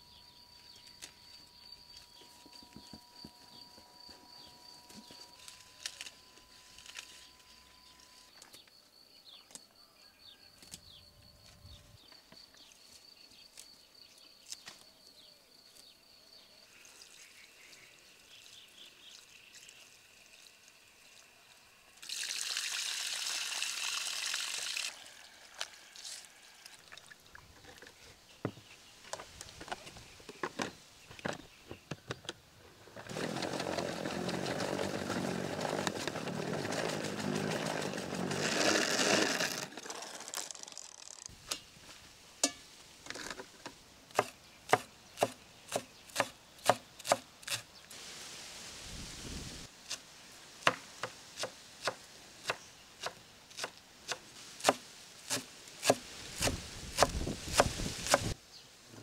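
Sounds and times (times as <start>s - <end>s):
leaves rustling and clicking: 4.9s - 8.6s, 25.1s - 28.2s, 32.9s - 44.3s
water running over lettuce: 22.0s - 26.2s.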